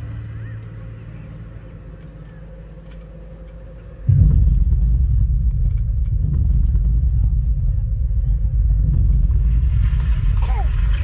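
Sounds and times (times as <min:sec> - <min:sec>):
loud deep rumble: 0:04.0 - 0:11.0.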